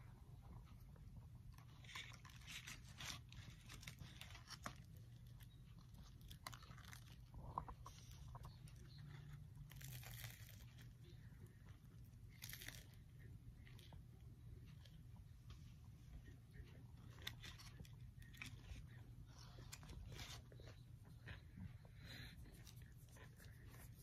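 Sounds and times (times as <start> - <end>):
low steady hum: 0.0 - 24.0
chewing crunchy fried food: 1.5 - 14.0.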